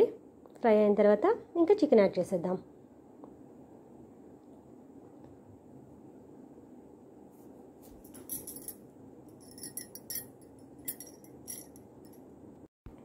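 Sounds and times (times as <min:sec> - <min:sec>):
low hum: 0:08.2 - 0:13.0.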